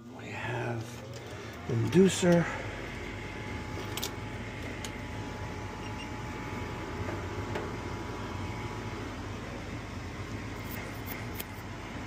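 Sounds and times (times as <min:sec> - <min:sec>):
furnace motor hum with whine: 0:00.0 - 0:12.0.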